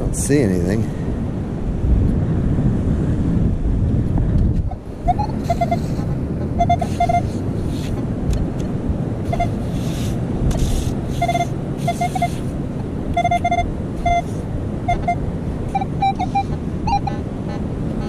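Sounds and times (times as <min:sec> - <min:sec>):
wind buffeting microphone: 0:00.0 - 0:18.0
metal detector beeping: 0:05.0 - 0:07.4, 0:09.3 - 0:09.6, 0:11.1 - 0:12.5, 0:13.1 - 0:17.2.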